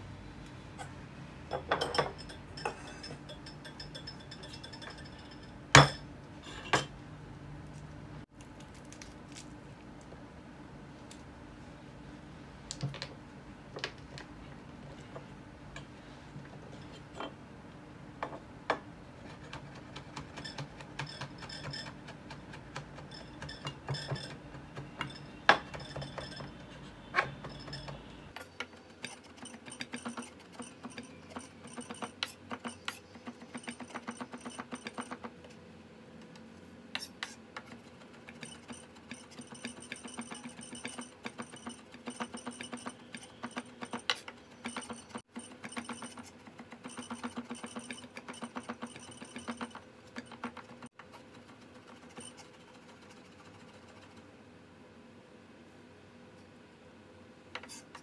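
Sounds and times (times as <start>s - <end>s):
knife mincing on wood: 19.2s - 35.3s, 37.0s - 54.0s.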